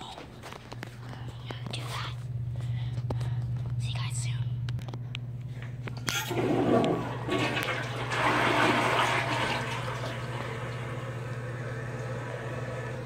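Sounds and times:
toilet flushing: 6.1 - 13.0.

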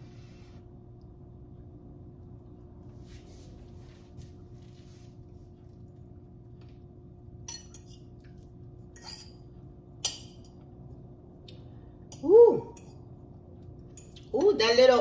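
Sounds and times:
fork clinking on ceramic bowl: 8.9 - 10.6.

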